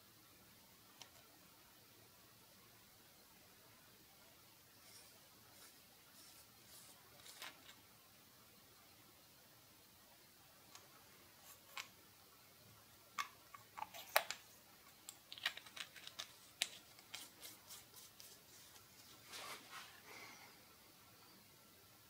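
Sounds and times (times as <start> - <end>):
soft rustle: 4.7 - 7.8, 13.8 - 20.6
small metal clicks and scrapes: 4.8 - 7.8, 13.2 - 17.6.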